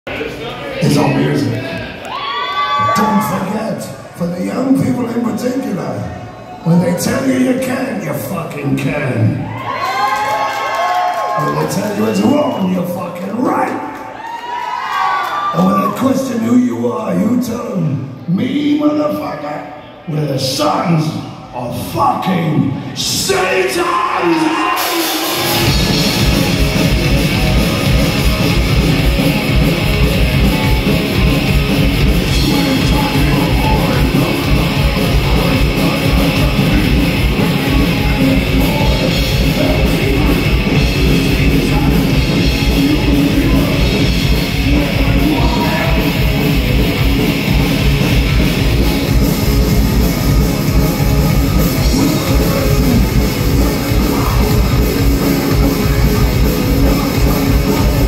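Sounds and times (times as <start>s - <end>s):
heavy metal band playing live: 23.0s - 58.0s.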